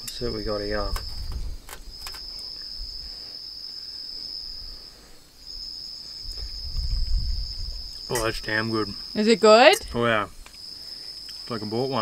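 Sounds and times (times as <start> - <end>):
night insects chirping: 0.0 - 12.0.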